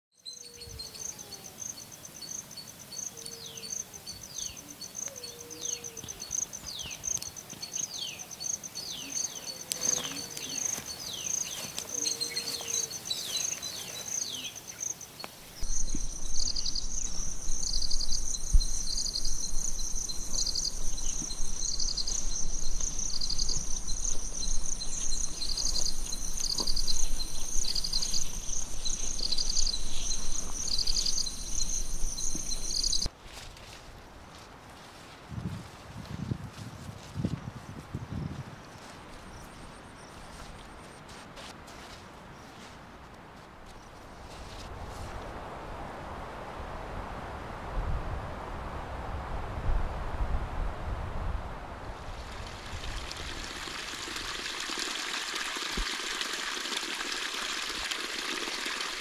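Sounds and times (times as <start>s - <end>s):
insect chorus: 0.2s - 33.8s, 38.2s - 40.5s
pulsed insect trills: 1.0s - 33.1s
birds calling: 3.0s - 33.1s.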